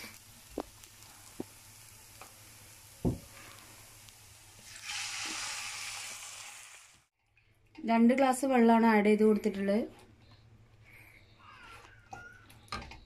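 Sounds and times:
vegetables sizzling in oil: 0.0s - 7.1s
water hissing on hot pan: 0.0s - 7.1s.

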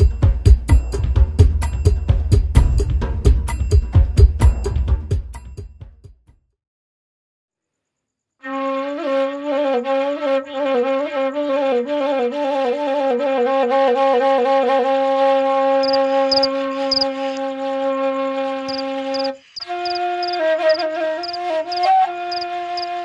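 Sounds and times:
solo wind instrument melody: 8.4s - 23.0s.

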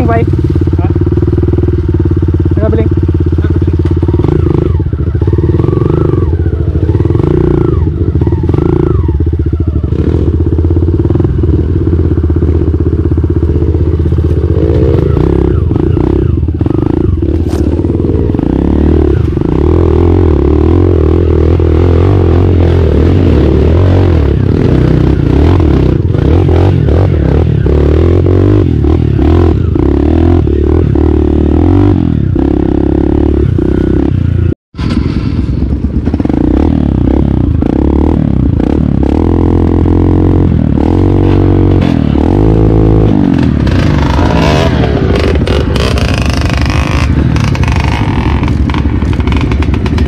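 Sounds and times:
dirt bike engine at low revs: 0.0s - 50.0s
bike knocking and rattling: 43.0s - 50.0s.

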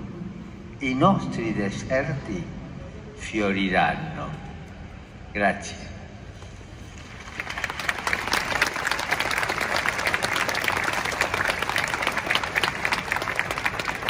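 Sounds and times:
crowd applauding: 6.9s - 14.0s.

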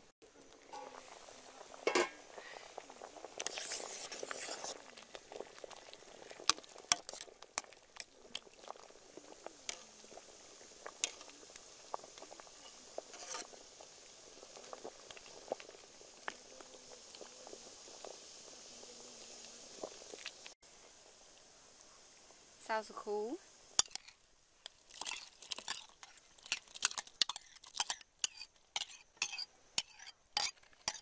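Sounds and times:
water boiling in pot: 0.0s - 31.0s
ladle clinking against pot: 1.8s - 2.2s.

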